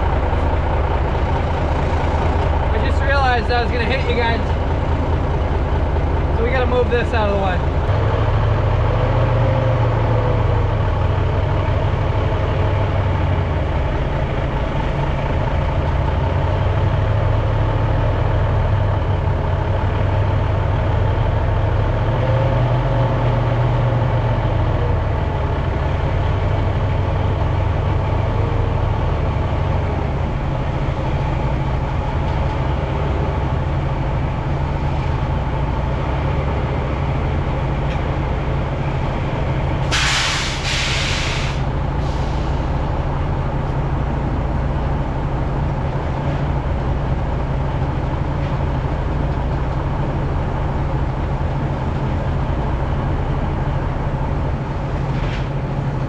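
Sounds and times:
truck engine running: 0.0 - 56.0.

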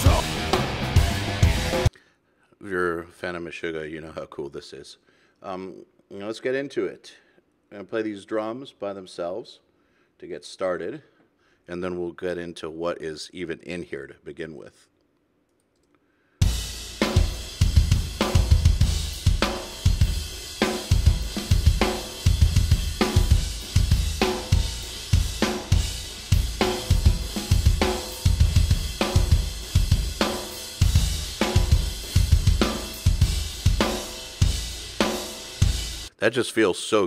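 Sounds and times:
cymbals: 16.4 - 36.1
double-kick drum patterns: 16.4 - 36.1
snare drum: 16.7 - 36.1.

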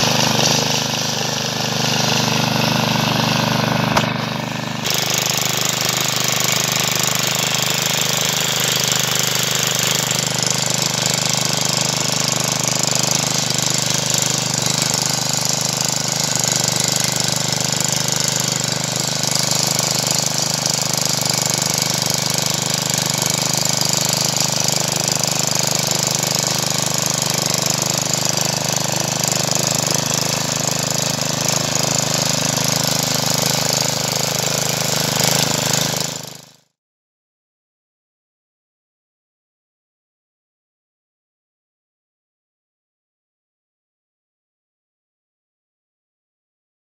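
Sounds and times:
garden tiller engine running: 0.0 - 36.7.

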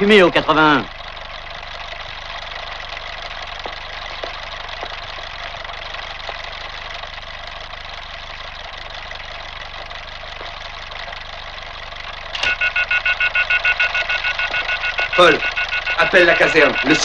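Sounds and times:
pulsing electronic alarm: 12.3 - 17.0.

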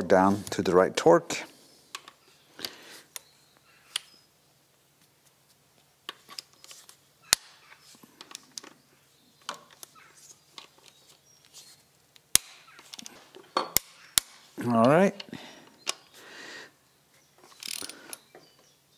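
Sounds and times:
socket wrench clicking: 17.6 - 18.2.

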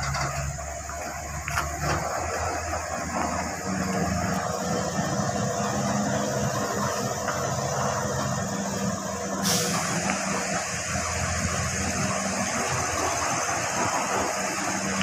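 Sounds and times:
truck diesel engine under load: 0.0 - 15.0
hiss: 8.7 - 15.0.

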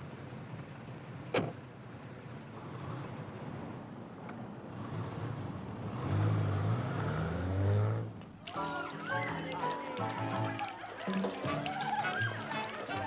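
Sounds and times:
car engine and road noise: 0.0 - 8.5.

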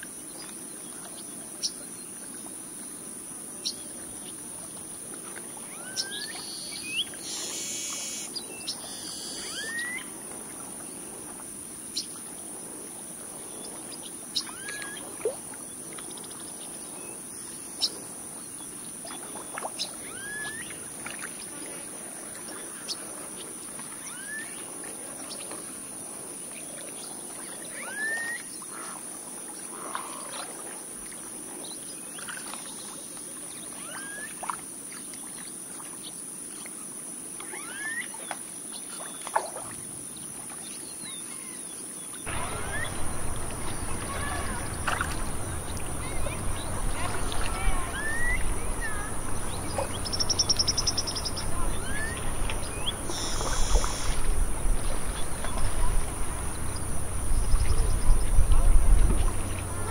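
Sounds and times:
bird chirps and whistles: 9.0 - 10.0, 47.5 - 54.1
high-pitched insect drone: 42.3 - 54.3.

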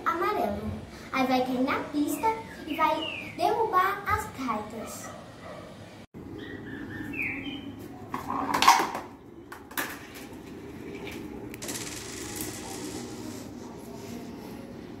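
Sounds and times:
marble rattling through tubes: 11.6 - 13.5
marble rolling on toy track: 11.6 - 13.5.

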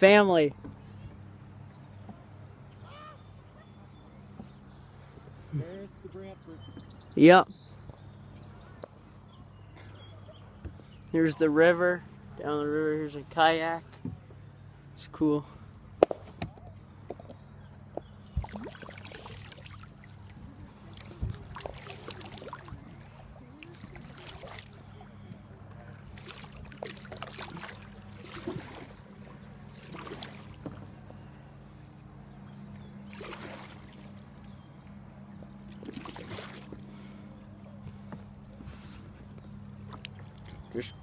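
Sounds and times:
steady low hum: 0.0 - 41.0
kayak paddle splashing water: 18.3 - 31.0, 33.0 - 34.6, 35.5 - 37.2.

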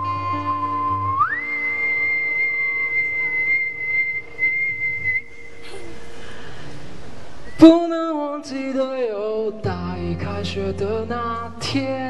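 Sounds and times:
person whistling high note: 0.0 - 5.6.

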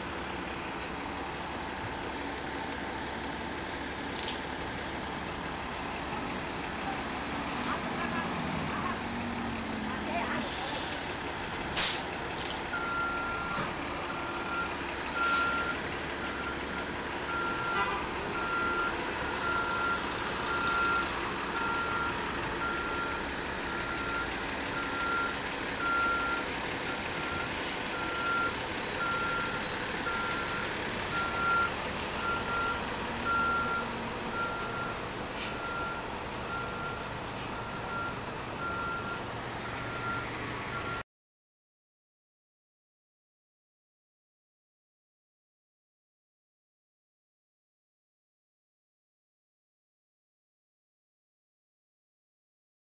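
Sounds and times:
city buses running: 0.0 - 41.0
sharp bus noises: 0.0 - 41.0
reversing alarm beeping: 12.4 - 41.0.

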